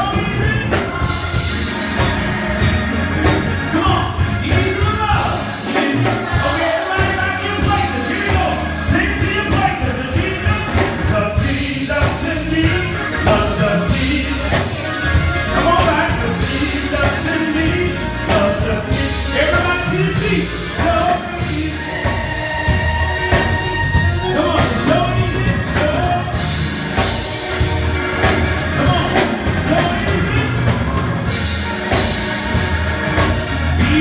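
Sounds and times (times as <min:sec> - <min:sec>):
gospel band with keyboard: 0:00.0 - 0:34.0
steady bass: 0:00.0 - 0:34.0
voices singing: 0:00.0 - 0:34.0.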